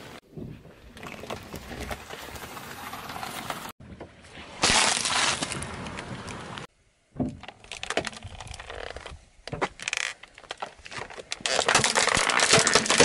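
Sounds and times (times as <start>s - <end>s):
tyre rolling over grit: 0.5s - 3.7s
tyre crushing objects: 4.6s - 5.9s, 10.5s - 13.0s.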